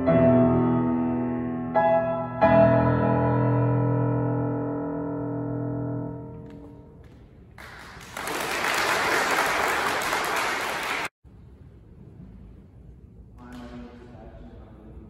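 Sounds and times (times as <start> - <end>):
grand piano chord: 0.0 - 7.0
audience applauding: 7.6 - 11.1.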